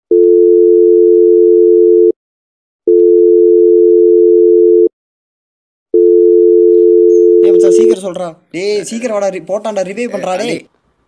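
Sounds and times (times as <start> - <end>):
low telephone beep: 6.0 - 8.0.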